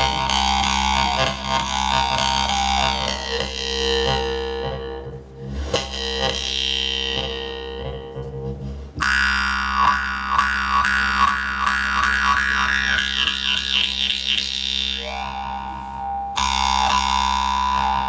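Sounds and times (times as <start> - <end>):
jaw harp drone: 0.0 - 18.0.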